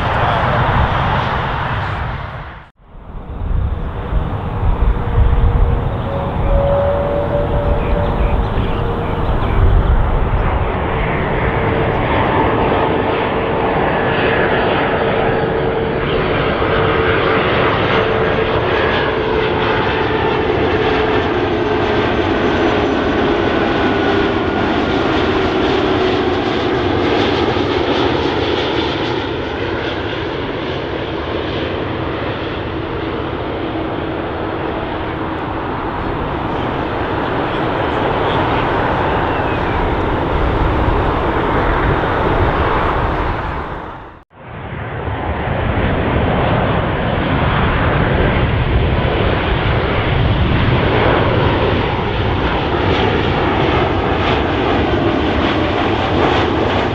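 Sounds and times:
jet engines roaring: 0:00.0 - 0:56.9.

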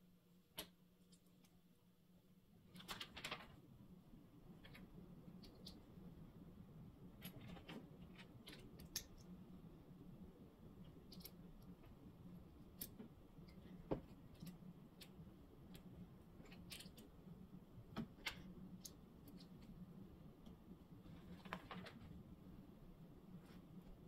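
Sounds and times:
faint low hum: 0:00.0 - 0:24.0.

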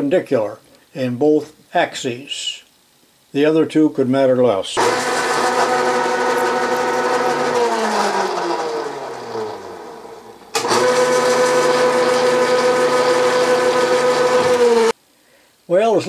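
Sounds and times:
milling machine motor running: 0:04.8 - 0:14.9.

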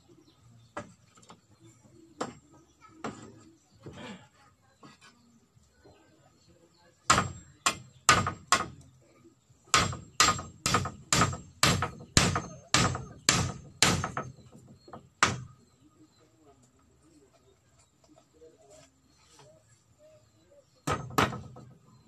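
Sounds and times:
hammering blows: 0:07.1 - 0:08.8, 0:09.7 - 0:15.6, 0:20.8 - 0:21.8.

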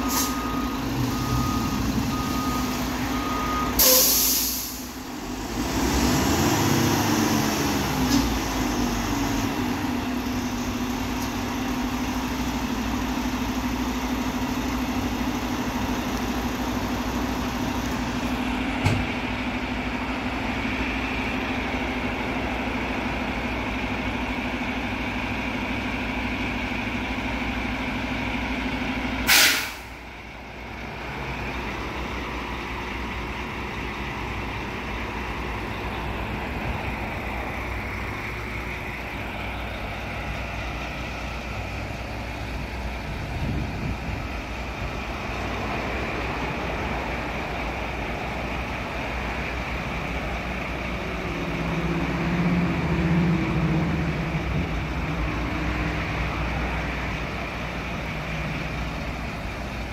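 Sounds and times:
air brake hiss: 0:00.0 - 0:00.5, 0:03.8 - 0:05.0, 0:29.3 - 0:30.0
garbage truck idling: 0:00.0 - 0:05.7, 0:07.7 - 0:59.9.

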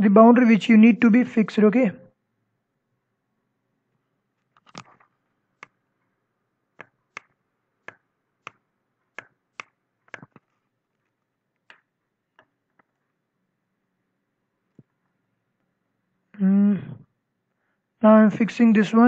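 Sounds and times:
computer mouse clicks: 0:09.2 - 0:10.5.

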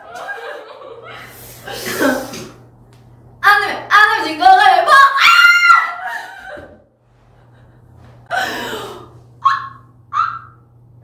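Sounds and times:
women laughing with shrieks: 0:05.2 - 0:06.8.

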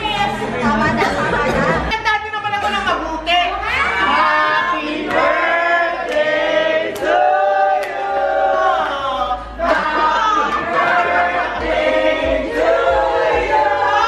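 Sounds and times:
group singing a celebration song: 0:03.7 - 0:14.0.

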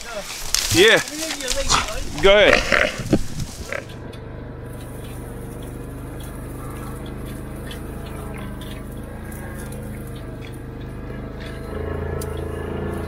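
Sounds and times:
atv engine running: 0:00.5 - 0:13.0
faint ticks and rattles: 0:00.5 - 0:13.0.

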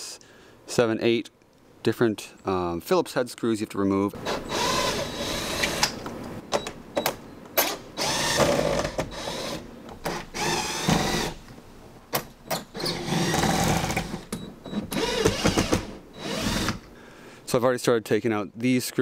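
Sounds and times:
cordless drill running: 0:04.2 - 0:05.9, 0:08.0 - 0:11.4, 0:12.8 - 0:14.3, 0:15.0 - 0:16.9.

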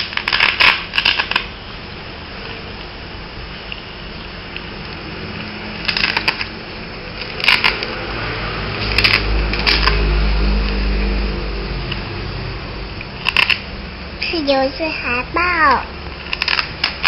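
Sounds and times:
stickers peeling crackly: 0:00.0 - 0:01.5, 0:05.8 - 0:06.6, 0:07.2 - 0:08.0, 0:08.8 - 0:10.0, 0:13.2 - 0:13.6, 0:16.2 - 0:17.0
low hum: 0:01.5 - 0:14.3.

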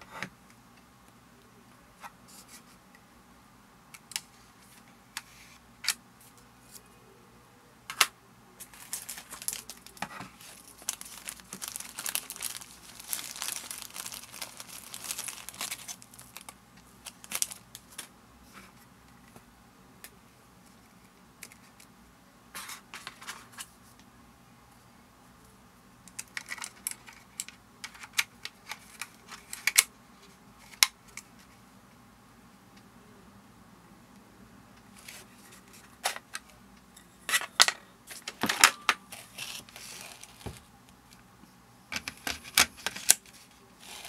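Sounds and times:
plastic bag crinkling: 0:08.6 - 0:18.0, 0:39.1 - 0:40.6, 0:43.8 - 0:44.0.

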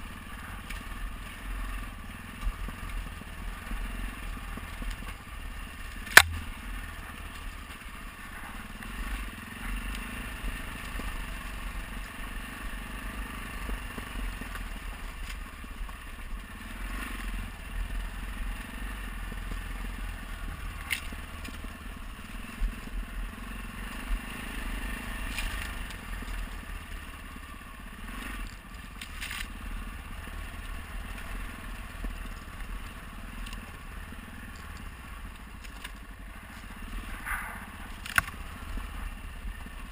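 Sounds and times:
motorcycle engine running: 0:00.0 - 0:39.9
tyres crunching over stones: 0:33.4 - 0:38.4.

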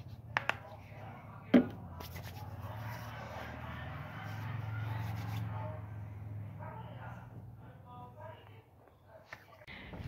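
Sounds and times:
hands rubbing together: 0:02.0 - 0:03.2, 0:04.2 - 0:05.5.

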